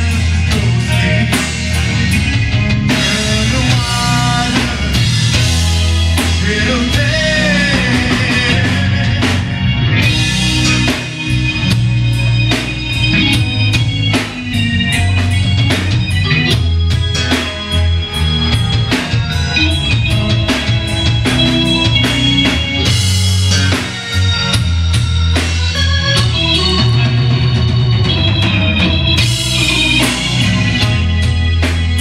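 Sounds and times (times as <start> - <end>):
rock band playing: 0.0 - 32.0
man singing: 0.1 - 2.1, 2.9 - 5.6, 6.2 - 9.5.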